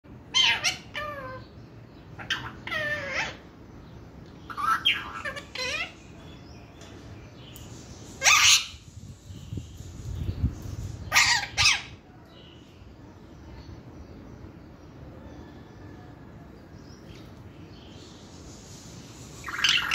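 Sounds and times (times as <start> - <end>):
parrot calling: 0.2 - 3.5, 4.5 - 6.2, 8.2 - 8.9, 11.1 - 12.0, 19.4 - 19.9.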